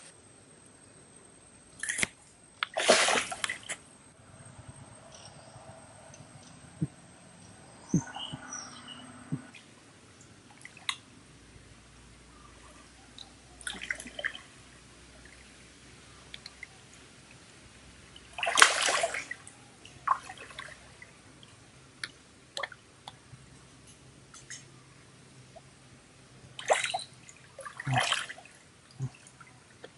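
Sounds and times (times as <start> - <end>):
hands splashing stream water: 2.6 - 3.8, 18.2 - 19.4.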